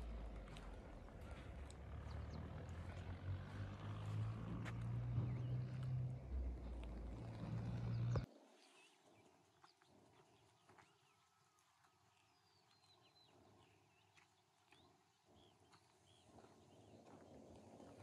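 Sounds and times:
low rumbling noise: 0.0 - 8.3.

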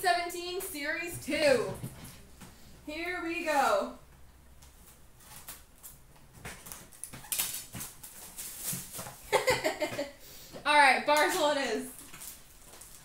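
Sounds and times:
plastic shrink wrap crinkling: 4.6 - 9.7, 11.1 - 13.0.

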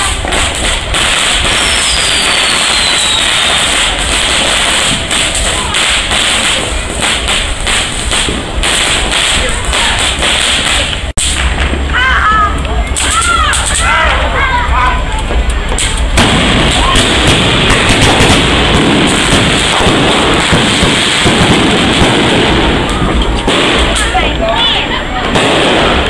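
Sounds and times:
fireworks fountain crackling: 0.0 - 26.0
falling whistle: 1.6 - 3.6.

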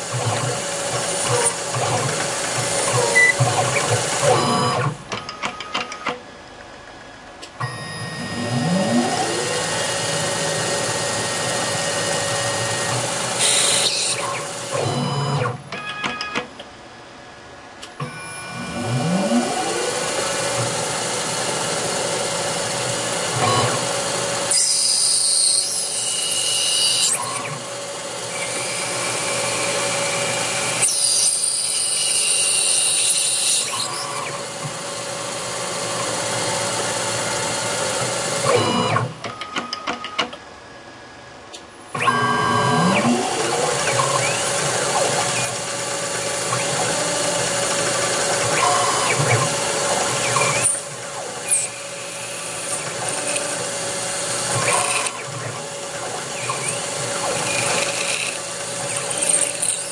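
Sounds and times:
lathe spindle whine: 7.9 - 15.3, 18.5 - 38.4, 43.0 - 59.9
drill cutting into metal: 8.2 - 15.2, 18.5 - 34.6, 42.8 - 59.9.

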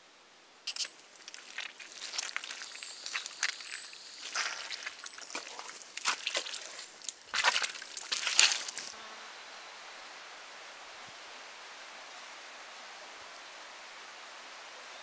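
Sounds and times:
footsteps crunching on a track: 0.7 - 9.0.

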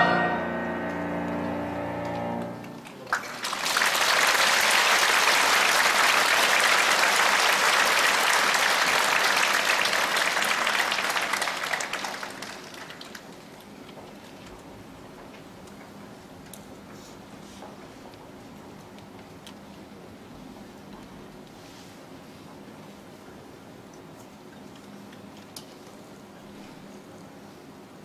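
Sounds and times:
choir holding a chord: 0.0 - 2.8
audience applause: 2.4 - 13.4.

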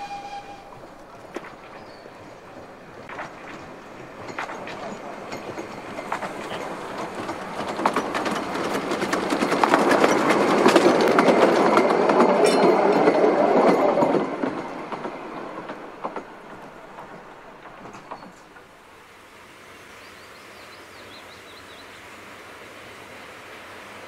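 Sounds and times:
wheels clicking over rail joints: 0.0 - 18.9
steam train passing: 0.0 - 24.0.

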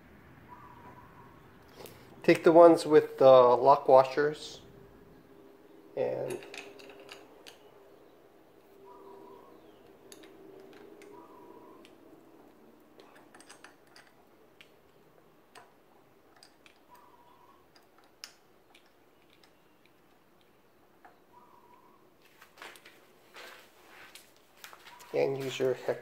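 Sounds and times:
small metal clicks and taps: 9.8 - 11.2, 13.0 - 17.1, 17.7 - 21.2.

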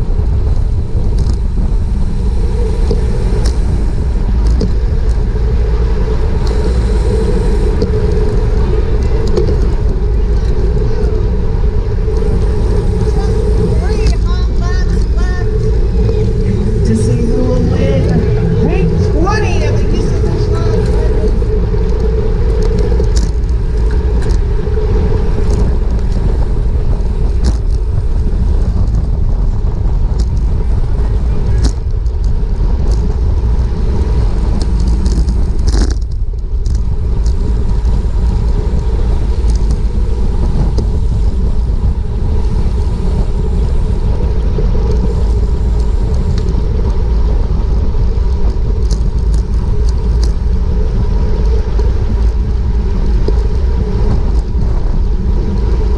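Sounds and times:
wind buffeting microphone: 0.0 - 55.9
small clicks and ticks: 0.5 - 1.5, 2.8 - 11.4, 12.0 - 18.2, 20.4 - 55.9.

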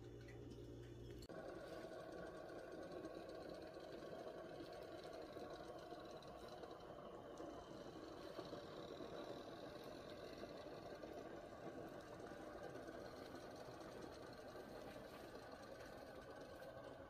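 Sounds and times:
faint mechanical hum: 0.0 - 17.0.

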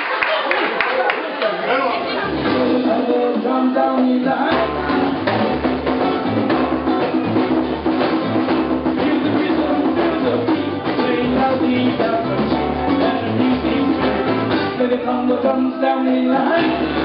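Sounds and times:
congas: 2.0 - 17.0
bass guitar: 2.1 - 17.0
drum kit: 2.3 - 15.8, 16.4 - 17.0
ukulele strumming: 4.5 - 15.1.

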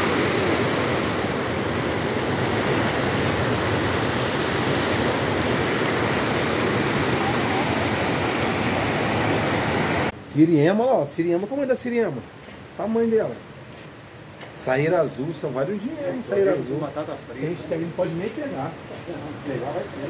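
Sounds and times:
waterfall rushing over rocks: 0.0 - 10.2.

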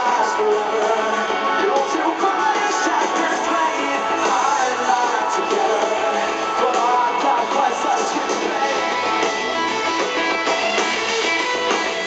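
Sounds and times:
electric guitar: 0.0 - 12.0
live rock band: 0.0 - 12.0.

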